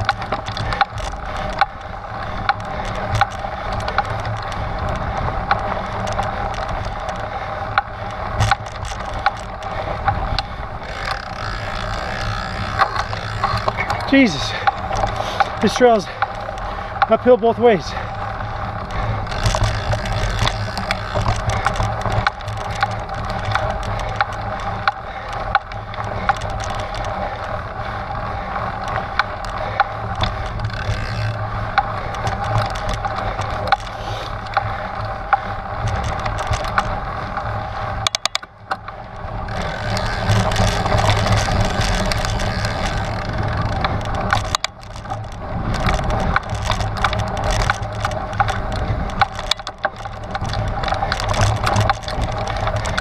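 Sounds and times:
bike rattling and clicking: 0:00.0 - 0:53.0
bike tyres crunching over dirt: 0:00.0 - 0:53.0.

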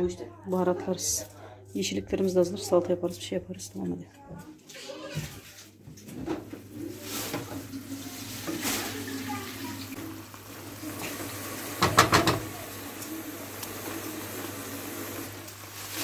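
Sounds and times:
tap water running into sink: 0:07.2 - 0:16.0.

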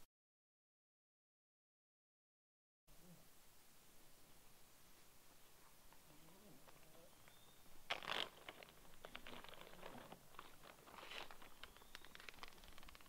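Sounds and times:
small crackling ticks: 0:05.9 - 0:13.0
sudden rustle: 0:07.8 - 0:13.0.

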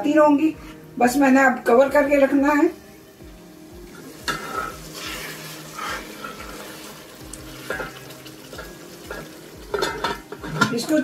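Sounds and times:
thick gravy bubbling in a pot: 0:03.7 - 0:10.8
spoon scraping a steel pot: 0:04.3 - 0:06.8.

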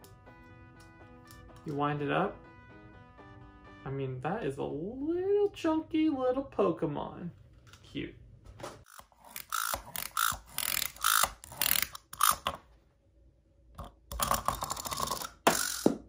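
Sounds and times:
wind-up toy clicking and ratcheting: 0:08.9 - 0:12.5, 0:14.1 - 0:15.9.

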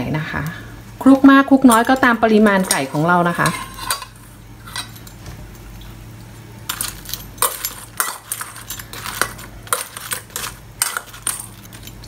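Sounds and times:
metal spoon scraping steel bowl: 0:02.5 - 0:05.1, 0:06.7 - 0:12.0.

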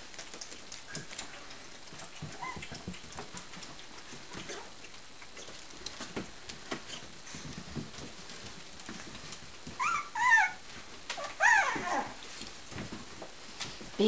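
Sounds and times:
puppy claws clicking on floor: 0:00.0 - 0:10.0
faint puppy squeak: 0:09.8 - 0:10.6, 0:11.2 - 0:12.2.

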